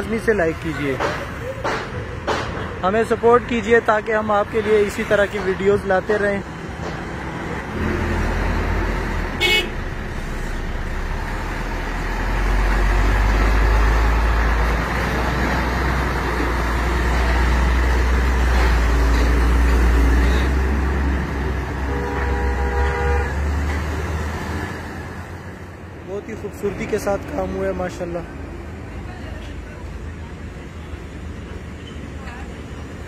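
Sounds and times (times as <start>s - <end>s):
truck diesel engine rumbling: 0.0s - 33.0s
truck horn: 9.4s - 9.9s, 21.8s - 23.6s.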